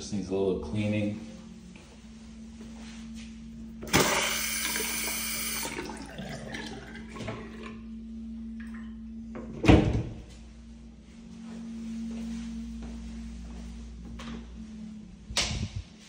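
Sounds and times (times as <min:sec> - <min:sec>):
steady low hum: 0:00.0 - 0:16.0
water rushing from faucet: 0:03.9 - 0:07.2.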